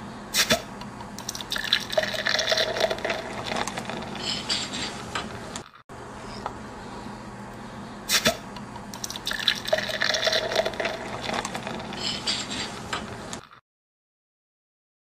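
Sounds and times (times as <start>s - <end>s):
beer pouring into glass: 1.3s - 4.2s, 9.0s - 12.0s.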